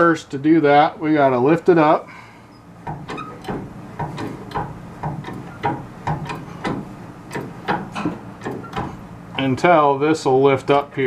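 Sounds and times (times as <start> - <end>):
hydraulic jack clacking: 2.8 - 9.0.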